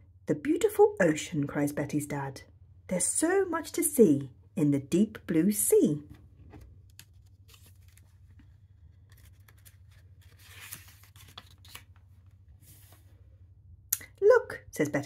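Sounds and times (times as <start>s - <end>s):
paper page rustling and turning: 6.1s - 13.2s.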